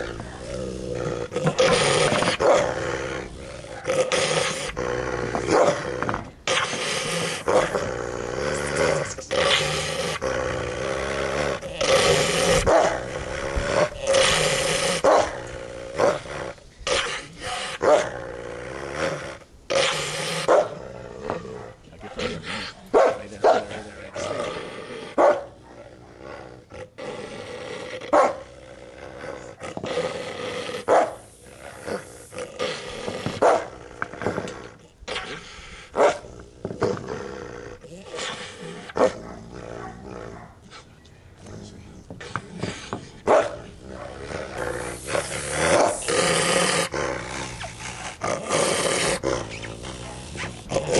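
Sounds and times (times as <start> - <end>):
wolf growling and snarling: 0.0 - 50.9.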